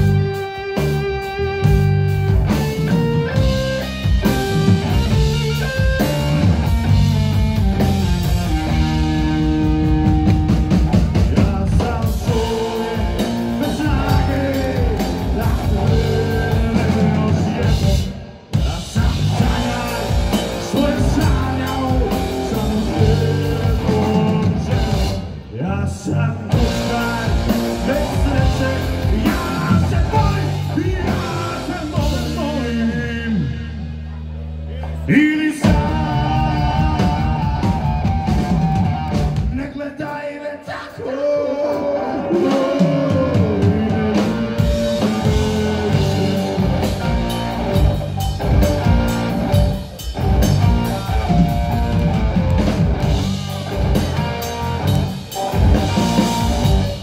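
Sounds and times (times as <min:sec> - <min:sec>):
drum kit: 0:00.0 - 0:25.5, 0:26.4 - 0:39.9, 0:41.7 - 0:57.0
bass guitar: 0:00.0 - 0:39.7, 0:41.6 - 0:57.0
electric guitar: 0:00.0 - 0:39.7, 0:41.4 - 0:57.0
man singing lead vocal: 0:10.9 - 0:47.5.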